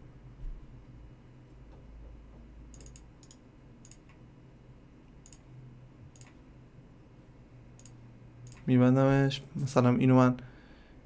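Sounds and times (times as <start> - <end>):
low steady hum: 0.0 - 11.0
computer mouse clicks: 2.7 - 4.2, 5.2 - 5.5, 6.1 - 6.4, 7.8 - 8.7.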